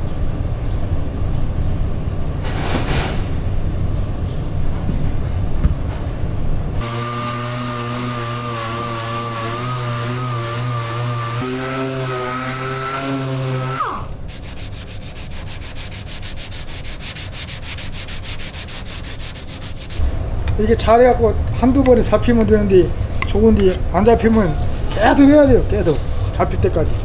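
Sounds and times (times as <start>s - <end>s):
sanding block scrubbing: 6.8s - 20.0s
orbital sander whining: 6.8s - 20.1s.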